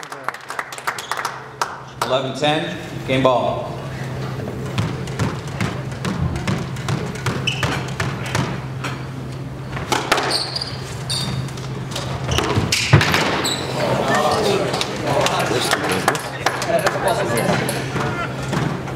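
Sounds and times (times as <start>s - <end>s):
steady low hum: 1.5s - 18.9s
shoes squeaking on hardwood floor: 7.0s - 8.0s, 10.1s - 12.8s.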